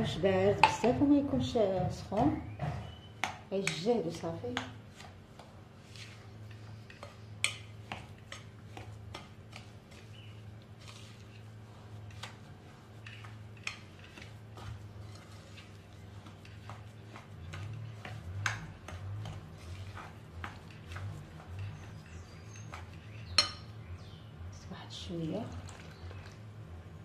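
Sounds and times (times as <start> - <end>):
hands mixing dough in glass bowl: 0.0 - 24.0, 24.9 - 27.0.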